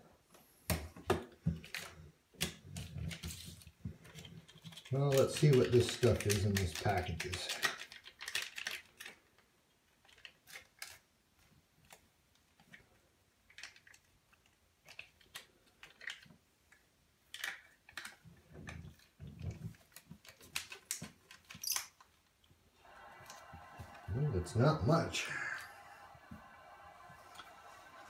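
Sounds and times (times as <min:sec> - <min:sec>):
sachet crinkling and tearing: 0:04.8 - 0:09.2.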